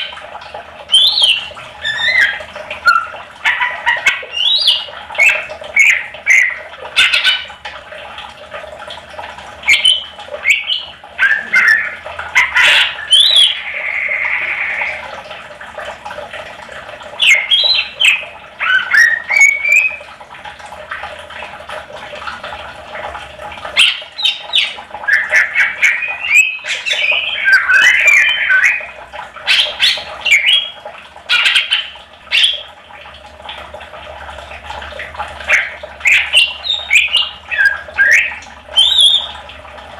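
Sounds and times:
bird singing chirps and whistles: 0.9s - 3.1s, 4.3s - 6.5s, 12.7s - 14.2s, 17.2s - 20.0s, 23.8s - 28.8s, 29.5s - 30.7s, 36.1s - 39.4s.

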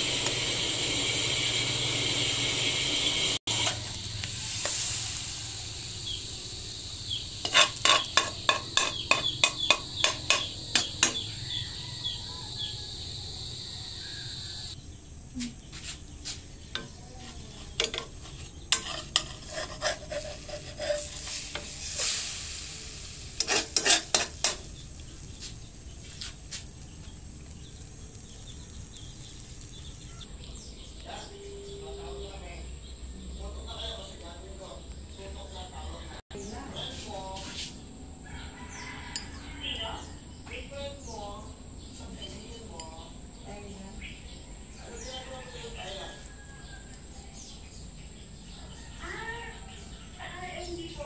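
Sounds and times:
pancake sizzling in a pan: 0.0s - 30.3s, 36.8s - 39.5s
plastic spatula scraping a pan: 7.4s - 11.1s, 16.8s - 22.3s, 23.3s - 25.1s.

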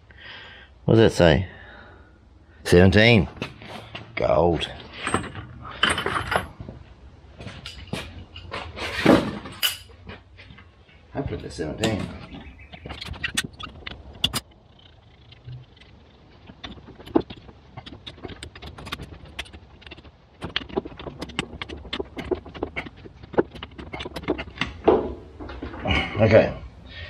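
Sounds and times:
sharp clicks and knocks: 11.4s - 25.8s.

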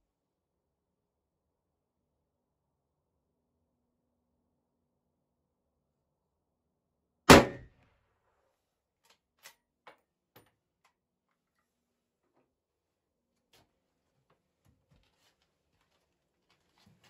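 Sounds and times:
rifle shot with ringing decay: 7.3s - 7.6s.

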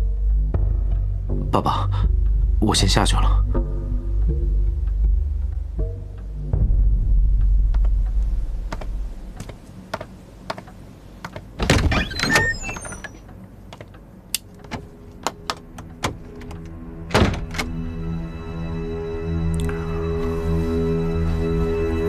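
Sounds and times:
background music: 0.0s - 22.0s
footsteps on hard floor: 8.7s - 11.5s
wooden door opening with knocks: 11.3s - 13.2s, 14.6s - 17.8s
door shutting thunk: 11.6s - 13.0s, 14.6s - 17.8s.

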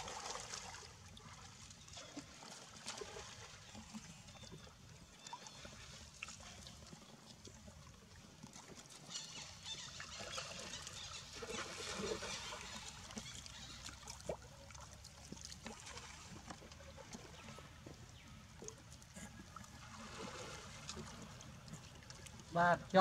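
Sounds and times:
water lapping and splashing: 0.0s - 23.0s
water drips: 12.7s - 23.0s.

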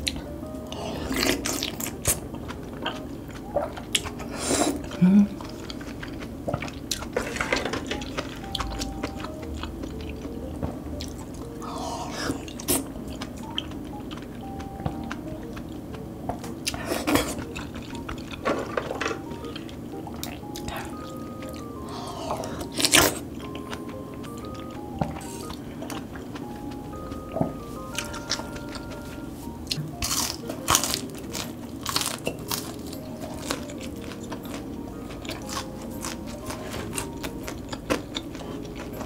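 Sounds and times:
soft background music: 0.0s - 39.0s.

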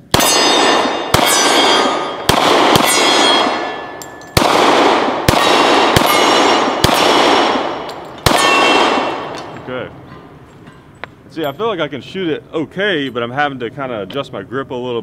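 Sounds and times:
pistol shots with ringing decay: 0.0s - 10.4s.

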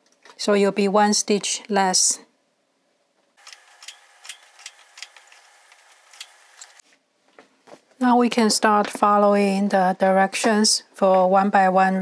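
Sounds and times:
knitting machine needles clicking: 3.4s - 6.8s.

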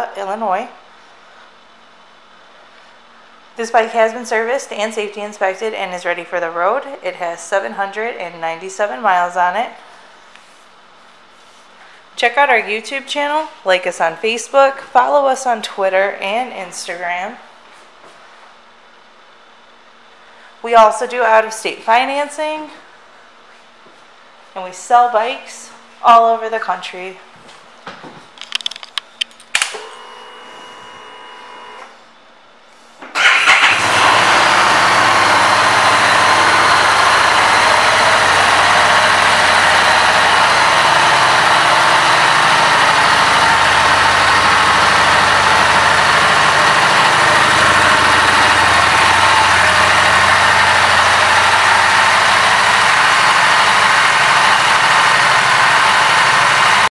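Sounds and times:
faint electric whine: 27.4s - 33.0s
motorcycle engine idling: 33.2s - 56.9s.

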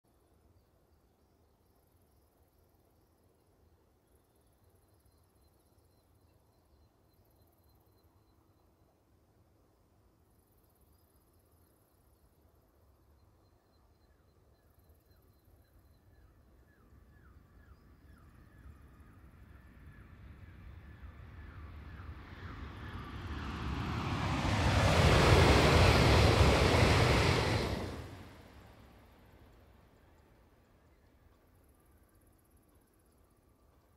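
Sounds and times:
high-speed train passing: 19.2s - 30.4s.

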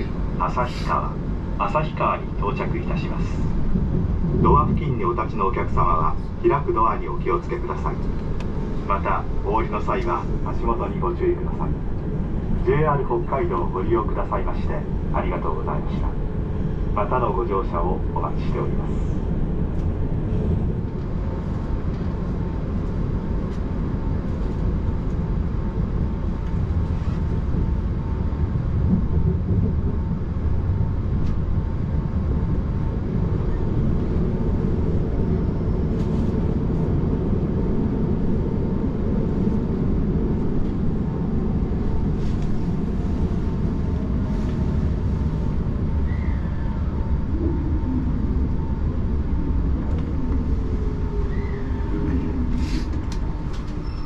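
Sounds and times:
train running rumble: 0.0s - 54.0s.

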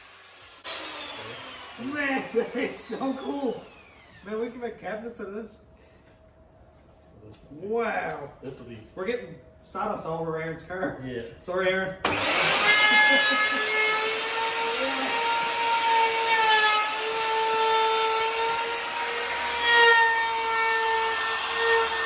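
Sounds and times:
wood being cut rasping: 0.0s - 4.2s, 12.1s - 22.0s
wood router whining: 0.0s - 4.4s, 12.0s - 22.0s.

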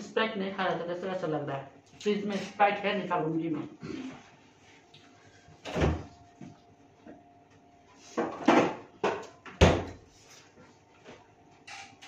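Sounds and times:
refrigerator door knocks and thumps: 5.7s - 6.1s, 8.5s - 10.0s.

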